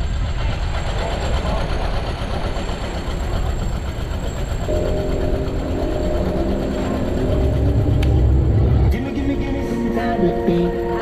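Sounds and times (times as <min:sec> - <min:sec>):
large vehicle engine rumble: 0:00.0 - 0:11.0
steady tones: 0:02.6 - 0:11.0.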